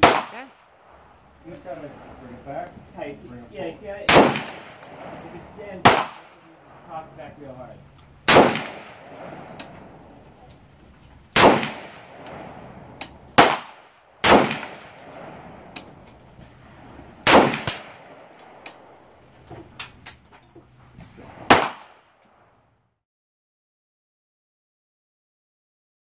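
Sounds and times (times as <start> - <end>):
rifle shots: 0.0 - 1.0, 4.0 - 6.9, 8.2 - 10.1, 11.3 - 19.1, 21.3 - 22.1
light clicks and clinks: 4.8 - 5.6, 18.2 - 21.2.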